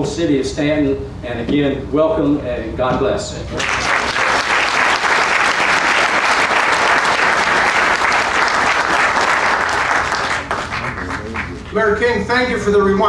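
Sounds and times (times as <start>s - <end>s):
audience applauding: 3.6s - 11.8s.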